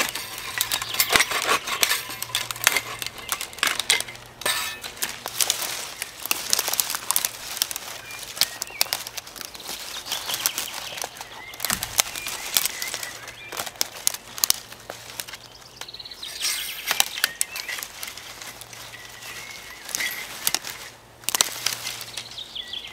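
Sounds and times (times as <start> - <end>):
birds chirping faintly: 0.0 - 22.9
dry sticks rustling and cracking: 0.0 - 22.9.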